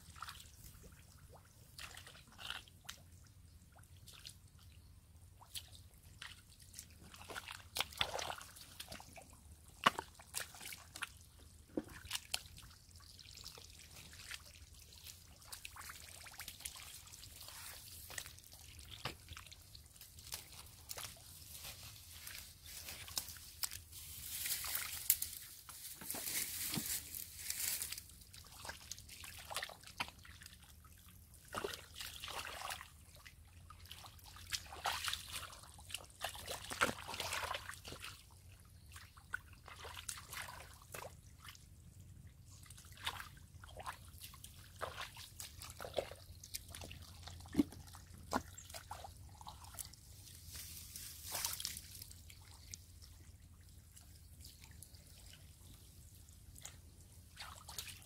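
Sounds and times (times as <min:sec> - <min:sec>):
muddy water sloshing: 0:00.0 - 0:58.0
wet mud squelching: 0:05.4 - 0:12.8, 0:13.4 - 0:30.6, 0:33.8 - 0:41.6, 0:42.4 - 0:53.1.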